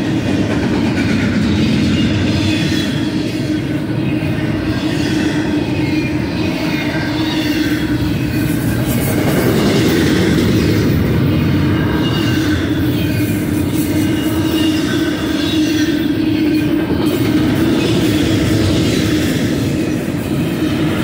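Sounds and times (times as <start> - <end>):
train wheels rumbling on rail: 0.0 - 21.0
high-pitched wheel squeal: 1.8 - 20.8.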